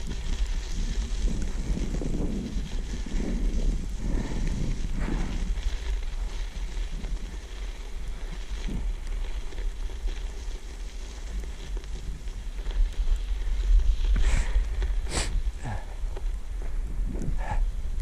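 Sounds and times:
bicycle riding through snow: 0.0 - 18.0
wind rumbling on microphone: 0.0 - 18.0.

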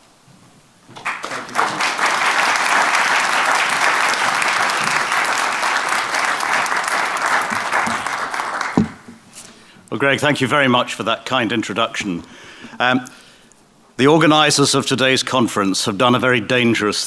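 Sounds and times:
audience applauding: 1.0 - 9.1.

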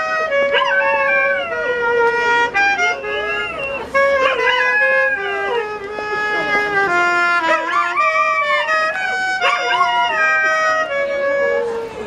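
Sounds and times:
dog howling: 0.0 - 2.0, 3.0 - 5.8, 7.4 - 11.8
clarinet tune: 0.0 - 12.0.

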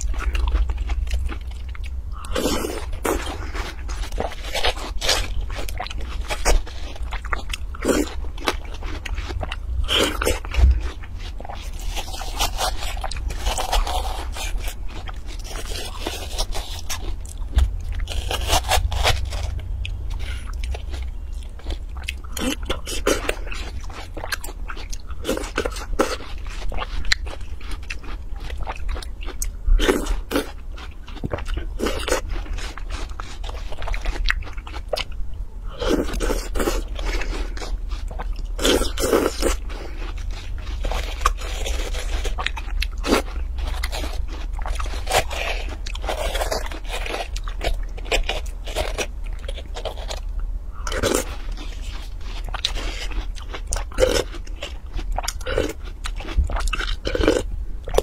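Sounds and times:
chewing watermelon: 0.0 - 58.0.

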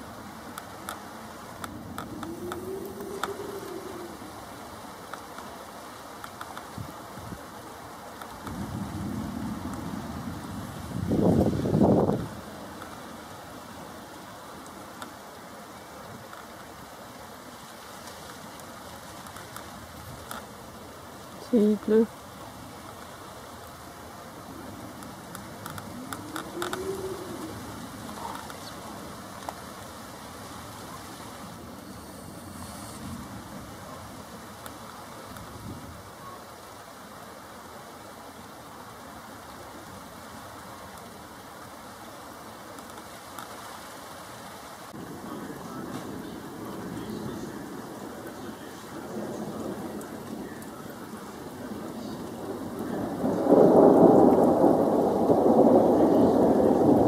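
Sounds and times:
steady rain falling: 0.0 - 57.0
thunder rumbling: 1.3 - 5.0, 8.4 - 15.0, 19.6 - 36.2, 44.9 - 57.0
pigeon cooing: 2.0 - 4.6, 25.8 - 29.0.

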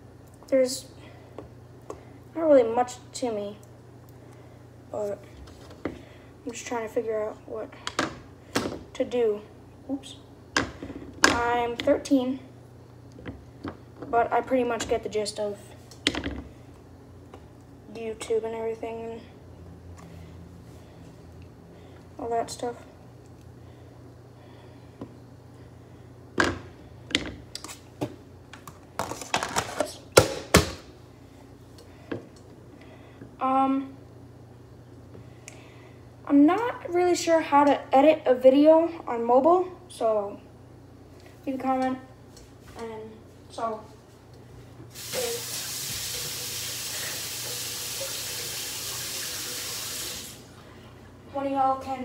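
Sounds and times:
tap running into a sink: 45.0 - 50.3.

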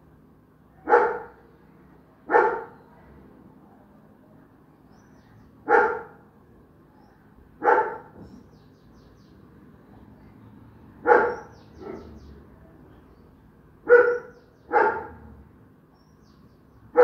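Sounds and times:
dog barking: 0.8 - 1.4, 2.3 - 2.8, 5.6 - 6.2, 7.6 - 8.2, 11.0 - 12.3, 13.8 - 15.3.

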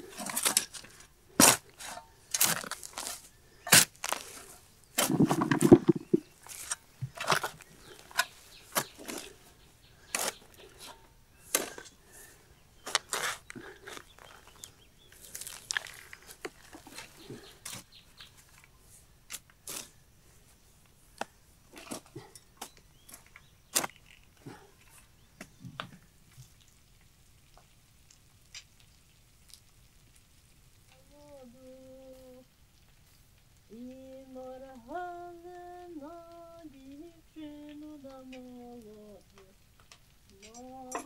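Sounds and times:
sharp clicks and knocks: 5.0 - 6.3
person humming: 31.0 - 32.5, 33.7 - 39.6, 40.3 - 41.0.

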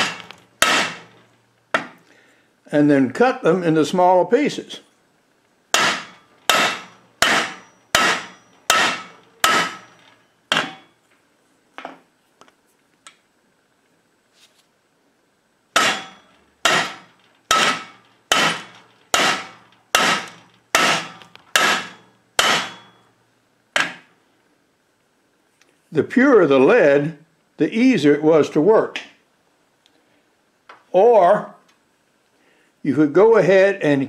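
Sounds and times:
hammer blows on anvil: 0.0 - 1.1, 5.8 - 11.0, 15.8 - 23.1.

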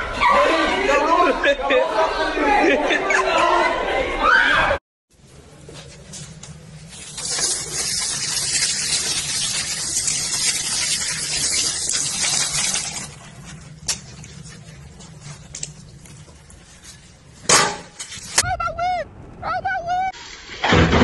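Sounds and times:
tap water running into sink: 7.0 - 13.2.

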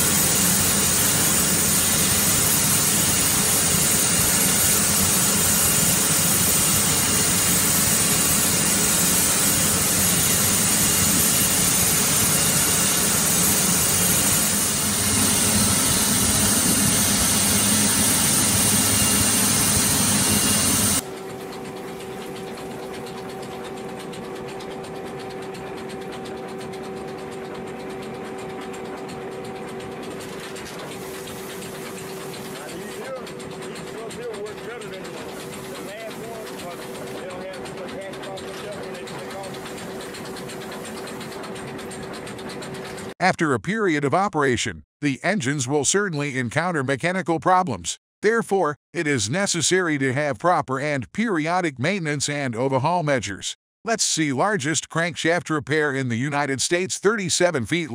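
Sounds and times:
loud industrial machinery hiss: 0.0 - 21.0.

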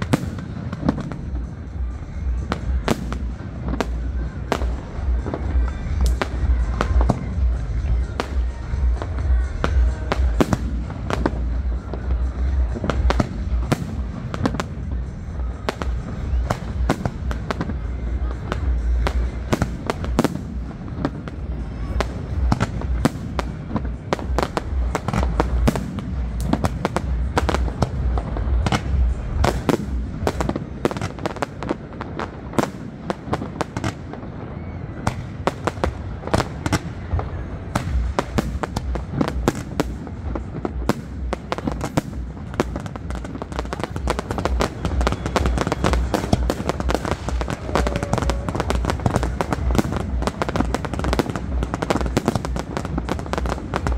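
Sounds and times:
fireworks bursts and crackle: 0.0 - 53.9
deep firework booms: 35.0 - 53.9.

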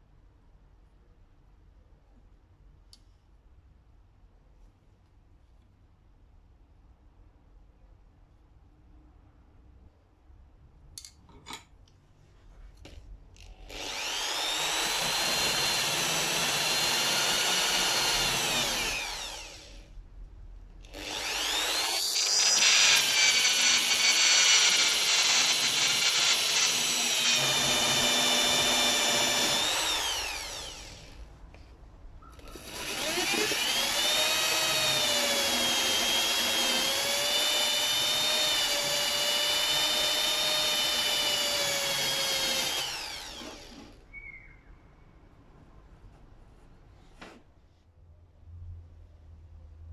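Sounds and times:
electric drill wire brush scrubbing: 13.7 - 19.8, 20.9 - 31.2, 32.4 - 44.0.

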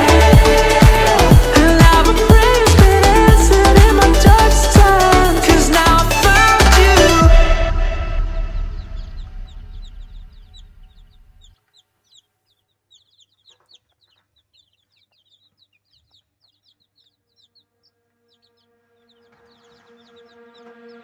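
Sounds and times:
background music: 0.0 - 11.5, 17.3 - 21.0
chicks peeping: 8.4 - 21.0.

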